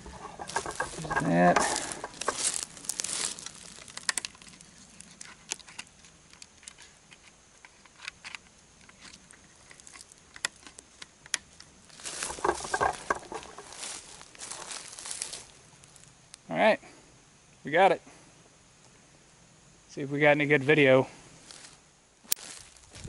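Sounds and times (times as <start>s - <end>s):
rustling in dry leaves: 0.0s - 6.9s, 8.8s - 16.4s, 21.2s - 23.0s.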